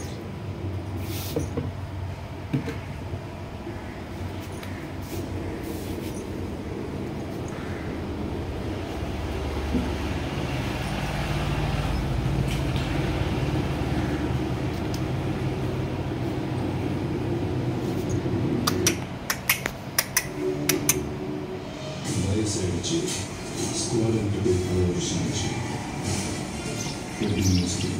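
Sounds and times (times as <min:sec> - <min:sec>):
low engine-like rumble: 0:00.0 - 0:27.9
sharp clicks: 0:18.7 - 0:21.0.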